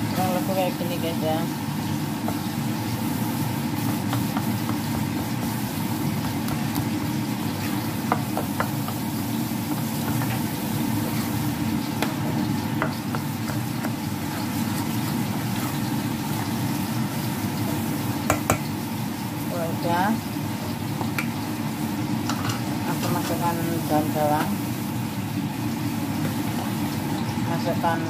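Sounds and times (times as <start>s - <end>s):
thick batter being stirred: 1.8s - 18.6s.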